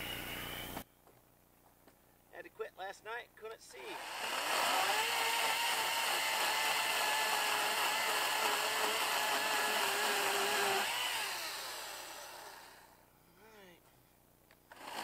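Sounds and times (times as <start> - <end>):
chainsaw cutting through log: 3.8 - 12.9, 14.7 - 15.0.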